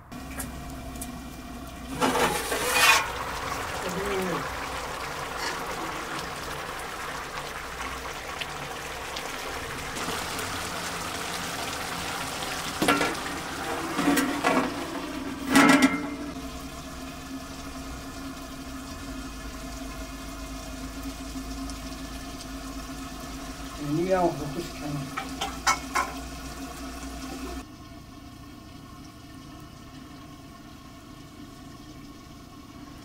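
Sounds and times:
pot of food boiling: 0.0 - 33.0
metal lid clanking: 1.9 - 3.2, 12.8 - 16.4, 25.2 - 26.2.

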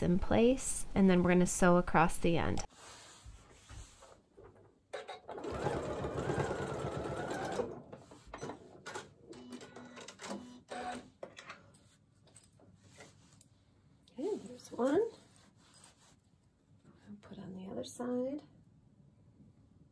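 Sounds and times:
sewing machine stitching fast: 5.2 - 8.1.

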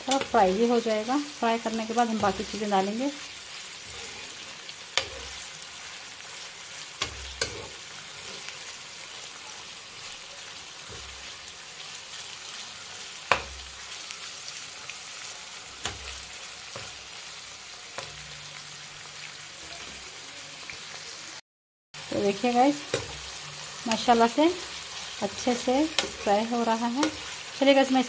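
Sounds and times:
chicken sizzling in oil: 0.0 - 21.4, 22.0 - 28.0
spoon knocking against pan: 13.3 - 13.6.

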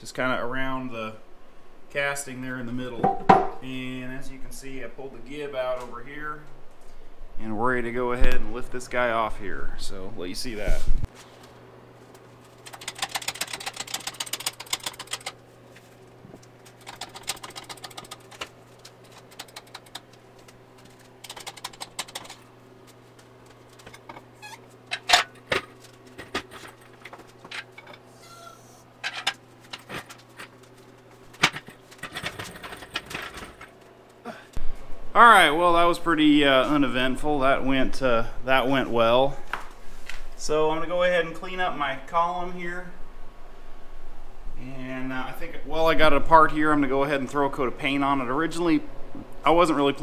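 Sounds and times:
steady low hum: 0.0 - 50.0
sharp knocks: 3.0 - 3.6
metallic clicking and rattling: 12.5 - 15.4, 16.4 - 22.5, 23.5 - 28.0, 31.3 - 33.9.

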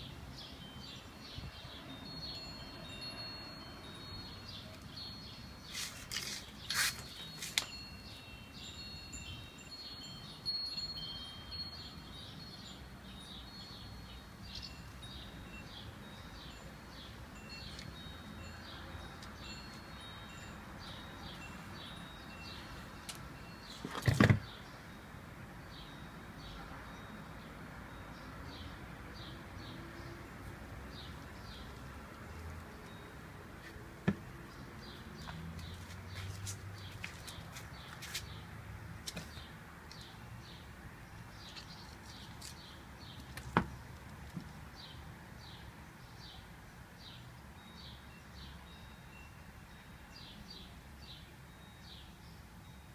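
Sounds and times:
turtle shell knocking on wooden floor: 34.0 - 34.3.

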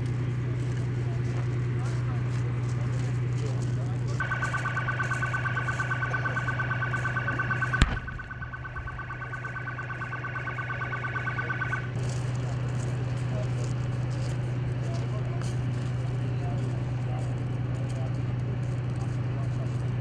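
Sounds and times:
steady low hum: 0.0 - 20.0
pulsing electronic alarm: 4.2 - 12.0.

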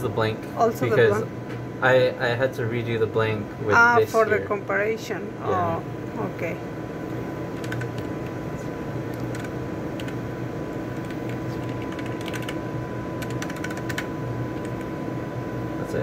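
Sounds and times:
room hum: 0.0 - 16.0
keyboard keys clicking: 7.6 - 8.1, 9.1 - 10.2, 11.0 - 12.6, 13.2 - 14.8.

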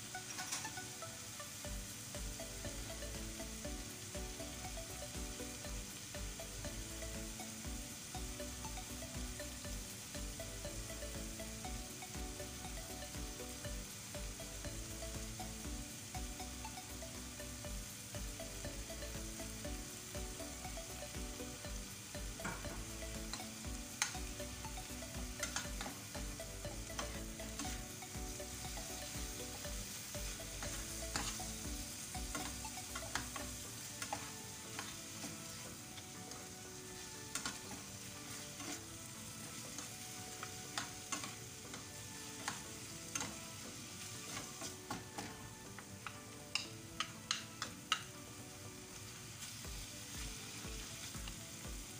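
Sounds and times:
sauce sizzling in a frying pan: 0.0 - 51.9
utensils clicking against pan: 22.4 - 24.4, 25.4 - 26.2, 30.6 - 31.6, 32.2 - 35.6, 37.3 - 38.9, 39.7 - 43.4, 44.2 - 48.1
utensils stirring and scraping: 25.4 - 26.1, 28.9 - 31.6, 32.2 - 48.1.

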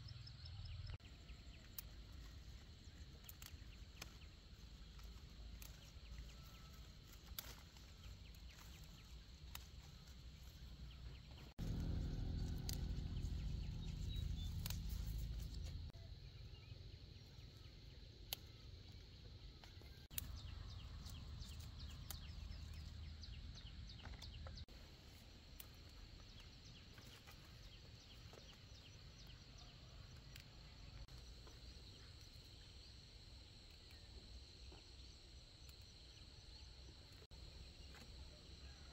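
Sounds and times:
leaves rustling: 1.7 - 16.0
peppers snapping off plants: 2.7 - 10.7, 11.6 - 15.9
low rumble: 7.8 - 16.7.

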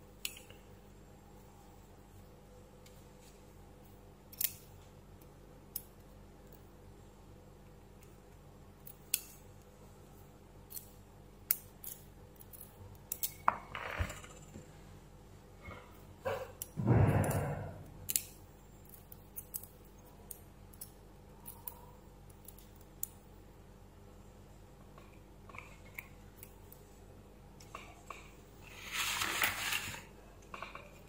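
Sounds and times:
scraping rustle: 28.6 - 30.1.

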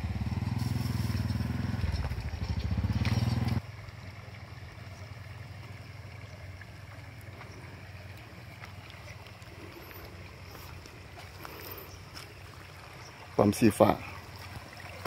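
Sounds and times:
small engine running: 0.0 - 3.7
faint outdoor background: 0.0 - 15.0.

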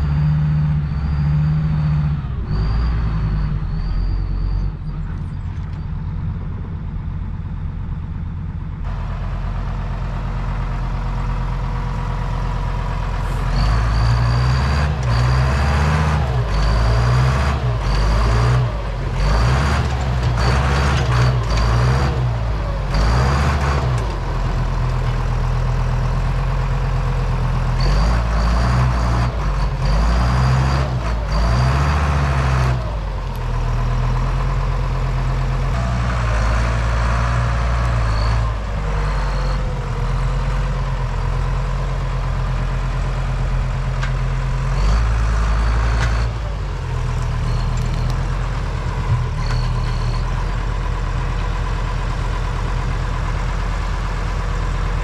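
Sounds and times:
tractor diesel engine surging: 0.0 - 55.0
short high squeak: 0.1 - 6.2.

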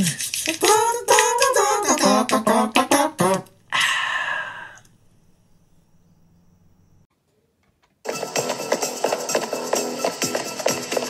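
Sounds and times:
person singing: 0.0 - 3.9
clicking beat: 8.1 - 11.0.

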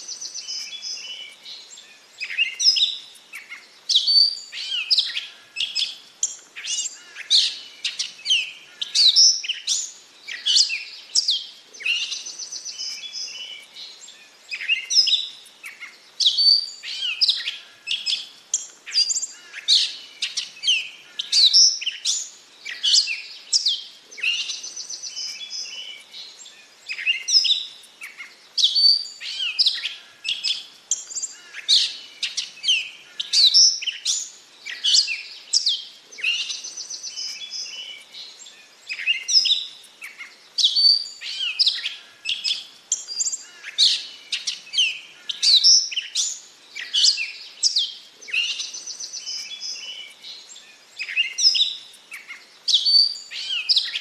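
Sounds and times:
catbird singing: 51.0 - 54.0.

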